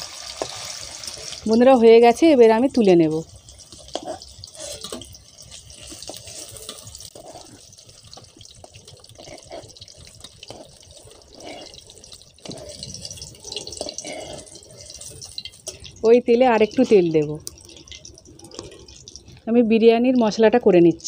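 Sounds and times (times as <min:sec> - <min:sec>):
cheese sizzling in hot oil: 0:00.0 - 0:21.0
metal spatula clicks and scrapes: 0:03.6 - 0:16.0.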